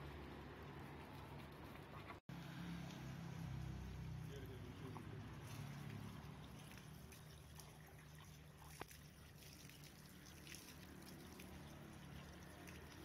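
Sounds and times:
water trickling and splashing: 0.0s - 13.0s.

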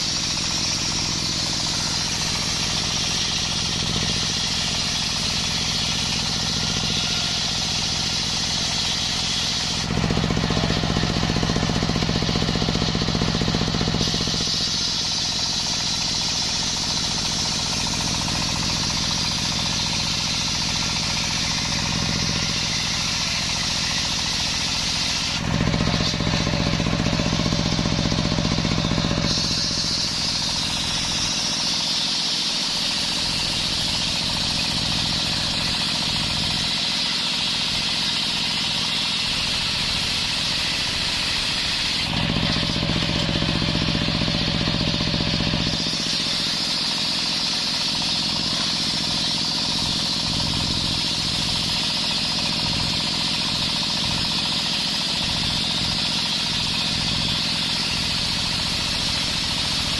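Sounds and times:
low motor hum: 0.0s - 31.8s
circular saw cutting wood: 0.0s - 59.9s.

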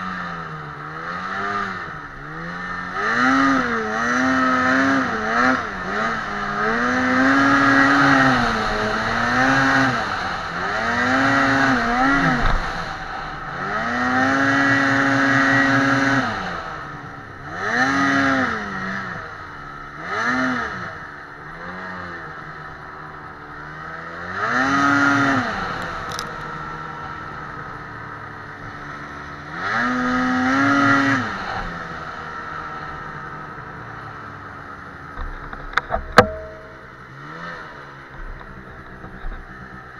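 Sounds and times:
snowmobile engine revving: 0.0s - 39.9s.

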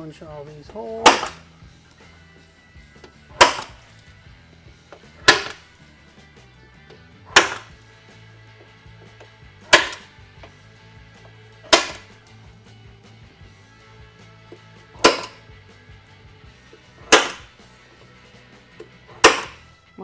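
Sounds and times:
center punch striking metal: 0.9s - 1.5s, 3.2s - 4.0s, 4.9s - 5.7s, 7.2s - 7.8s, 9.6s - 10.2s, 11.6s - 12.2s, 14.5s - 15.5s, 16.8s - 17.6s, 18.6s - 19.7s.

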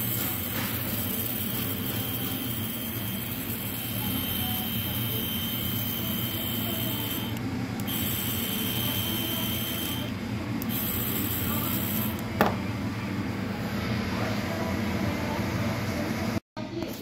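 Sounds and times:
electric pump motor humming: 0.0s - 12.6s.

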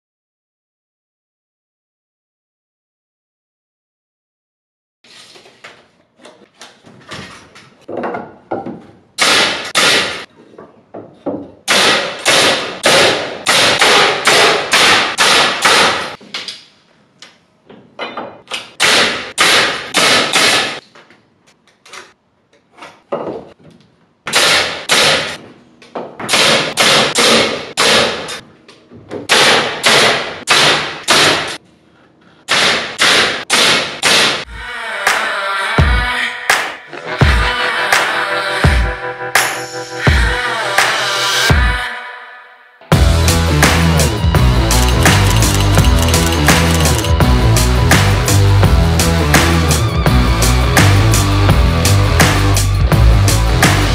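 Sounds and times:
nail gun firing into wood: 9.2s - 10.2s, 11.7s - 16.2s, 18.7s - 20.8s, 24.3s - 25.4s, 26.2s - 28.4s, 29.3s - 31.6s, 32.5s - 34.4s.

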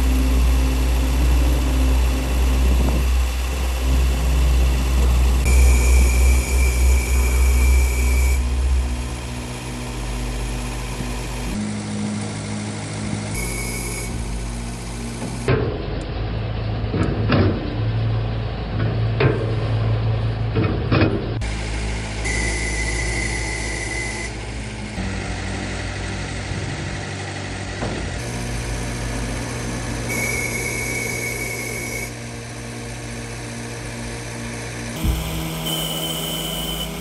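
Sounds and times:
hydraulics whirring: 0.0s - 37.0s
truck engine running: 0.0s - 37.0s
sharp clicks and knocks: 16.9s - 17.9s.

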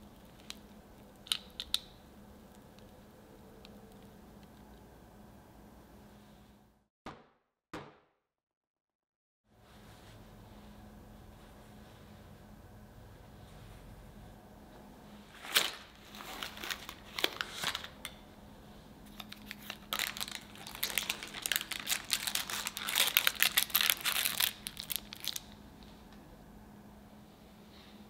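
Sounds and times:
baking paper crinkling and tearing: 15.3s - 18.1s, 19.1s - 25.6s.

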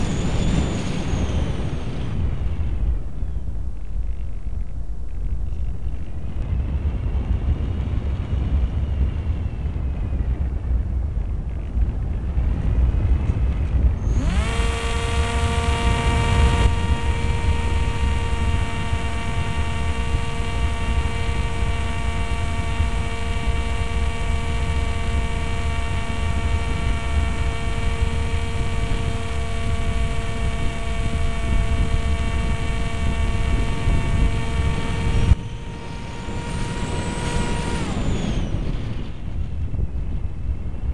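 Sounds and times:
electric propeller motor whine: 0.0s - 40.9s
wind buffeting microphone: 0.0s - 40.9s.

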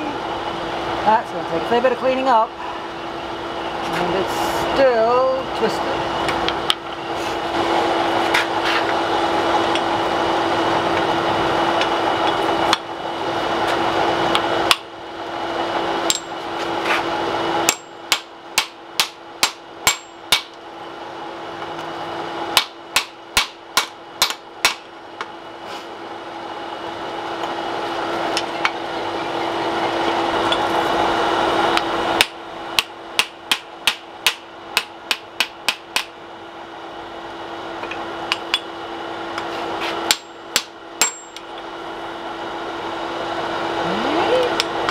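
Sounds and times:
steady background hum: 0.0s - 44.9s
hammer striking on anvil: 17.7s - 20.6s, 22.6s - 24.9s, 40.1s - 41.4s.

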